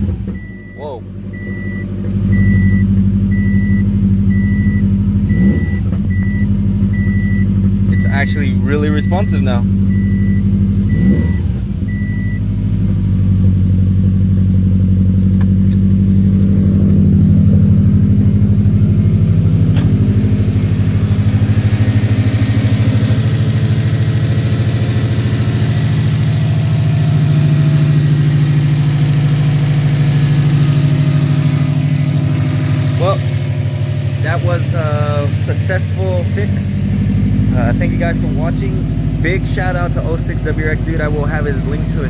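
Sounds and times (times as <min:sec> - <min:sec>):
car engine idling: 0:00.0 - 0:42.0
short electronic beeps: 0:00.4 - 0:12.4.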